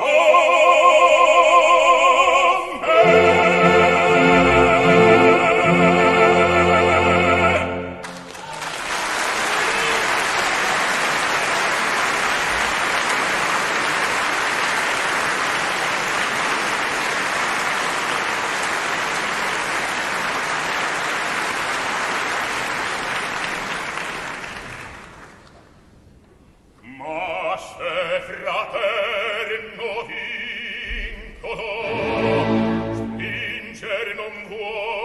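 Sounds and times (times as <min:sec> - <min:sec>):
audience applauding: 0:08.0 - 0:25.7.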